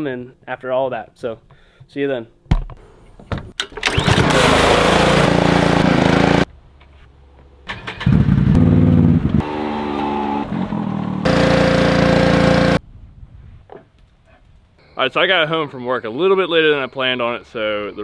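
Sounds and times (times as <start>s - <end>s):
atv engine starting and revving: 3.8s - 6.5s, 7.7s - 12.8s.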